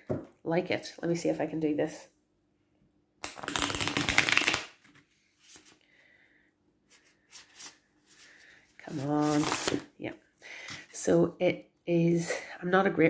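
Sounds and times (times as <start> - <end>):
cards tapping and rustling: 3.2 - 5.0
cards riffle shuffled: 3.2 - 5.8, 8.9 - 9.8.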